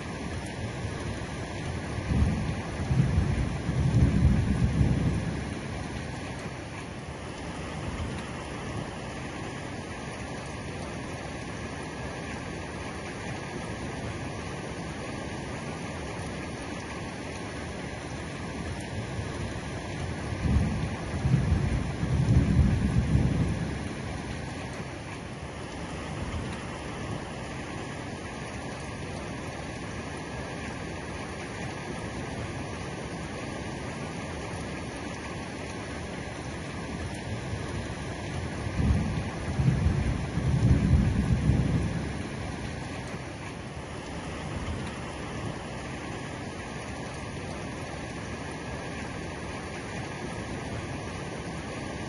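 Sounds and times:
heavy rain falling: 0.0 - 52.0
low roll of thunder: 1.8 - 6.2, 20.1 - 24.5, 37.1 - 43.2.

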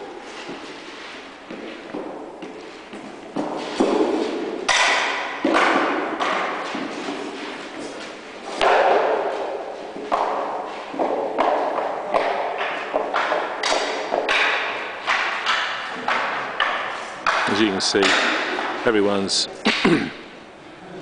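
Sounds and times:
spears and shields knocking: 1.5 - 7.8, 8.5 - 18.8.

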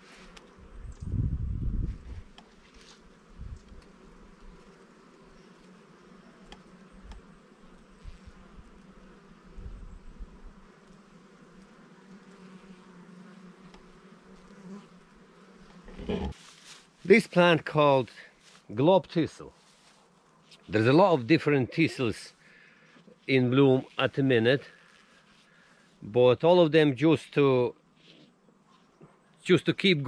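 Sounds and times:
honeybees buzzing: 0.0 - 18.0.

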